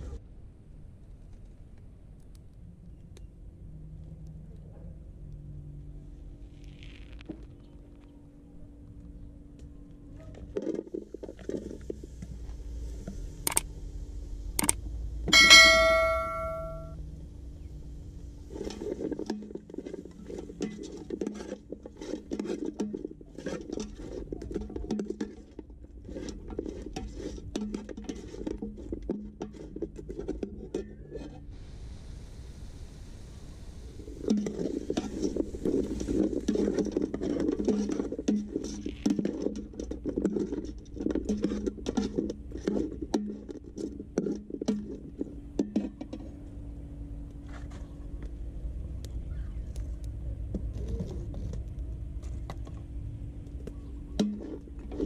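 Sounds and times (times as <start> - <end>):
ringing metal pot tone: 15.3 - 17.0.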